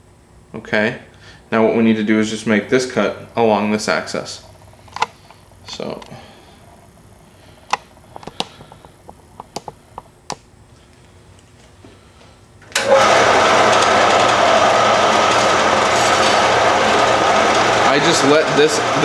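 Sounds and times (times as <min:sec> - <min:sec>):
bandsaw cutting steel: 0:12.8 - 0:19.0.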